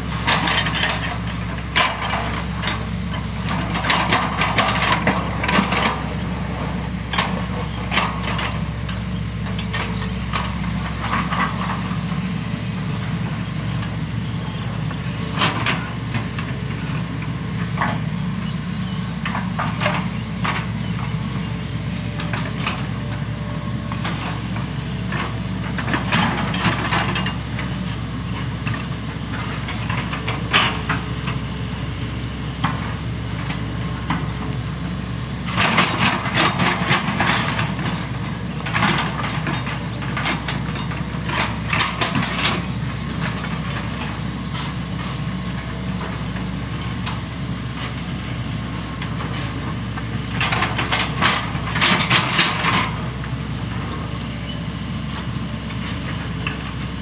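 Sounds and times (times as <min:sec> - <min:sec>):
excavator diesel engines running: 0:00.0 - 0:57.0.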